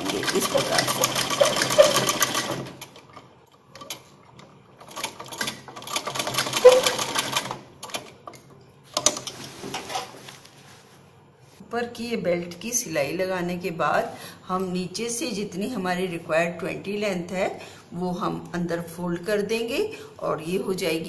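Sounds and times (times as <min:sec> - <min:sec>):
sewing machine stitching: 0:00.0 - 0:03.2, 0:03.8 - 0:08.1.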